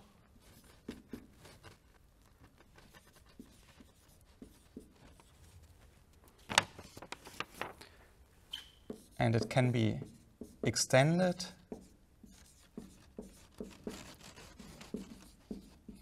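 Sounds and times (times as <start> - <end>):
marker writing on whiteboard: 0.4 - 6.4, 8.5 - 16.0
marker tapping on whiteboard: 8.8 - 10.8, 11.7 - 14.1, 14.8 - 16.0.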